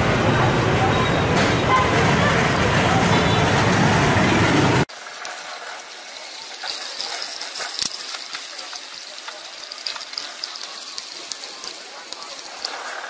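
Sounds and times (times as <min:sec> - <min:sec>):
loud traffic noise: 0:00.0 - 0:04.9
oysters sizzling and crackling: 0:04.8 - 0:13.0.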